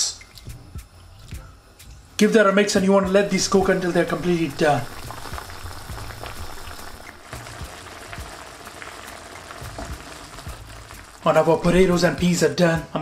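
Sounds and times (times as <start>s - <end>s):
stock bubbling and popping: 3.6s - 11.8s.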